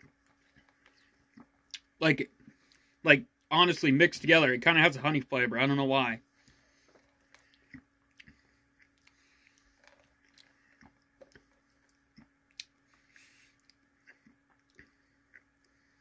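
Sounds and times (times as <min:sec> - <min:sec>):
mouth clicks and lip smacks: 0:00.0 - 0:02.8, 0:07.3 - 0:12.8
faint steady hum: 0:00.0 - 0:16.0.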